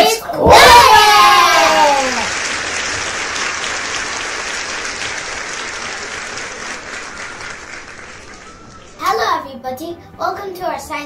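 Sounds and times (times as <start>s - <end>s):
crowd applause: 1.3s - 9.0s.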